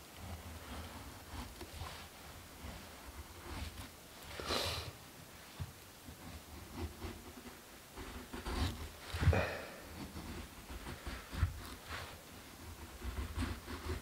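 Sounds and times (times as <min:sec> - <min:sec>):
knife scraping wood: 0:06.4 - 0:14.0.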